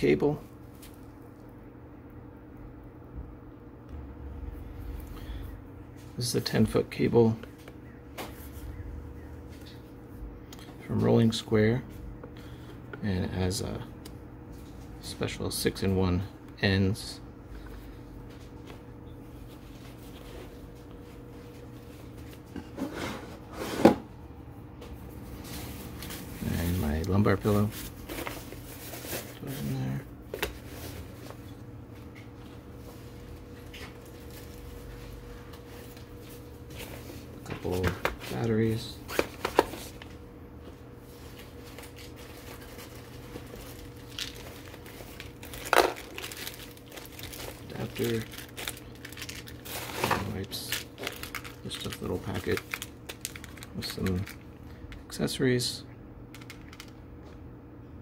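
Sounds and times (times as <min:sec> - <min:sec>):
nylon bag crinkling and rustling: 0:41.2 - 0:54.5.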